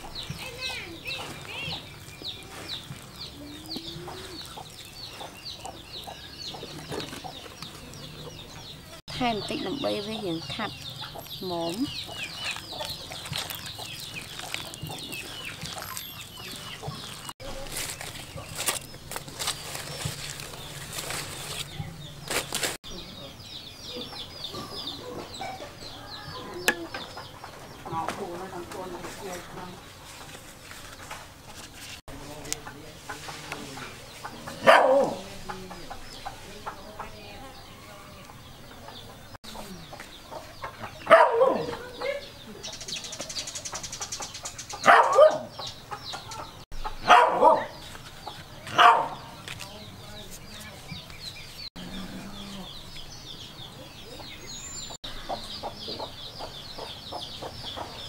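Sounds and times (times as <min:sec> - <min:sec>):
chickens squawking: 0:00.0 - 0:17.4, 0:40.2 - 0:49.3
chicks peeping: 0:00.0 - 0:30.0, 0:32.1 - 0:58.0.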